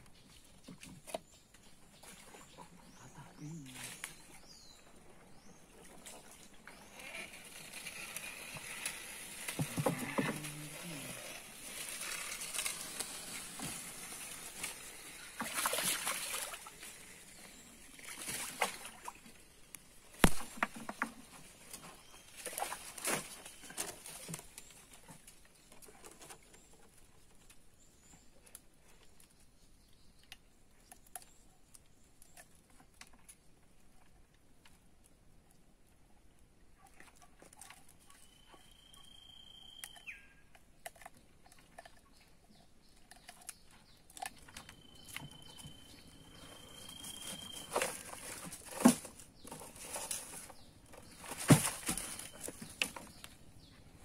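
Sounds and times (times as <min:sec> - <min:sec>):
fish splashing: 0:07.0 - 0:16.9.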